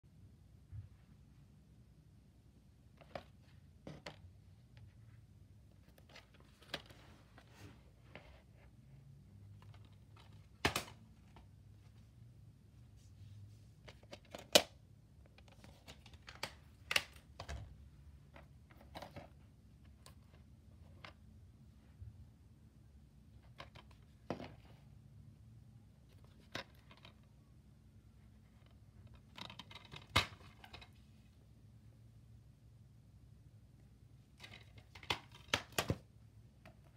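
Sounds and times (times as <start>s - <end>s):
low room hum: 0.0s - 36.9s
plastic case clicks and rustles: 13.9s - 17.7s, 26.2s - 27.3s, 28.6s - 31.1s, 34.4s - 36.9s.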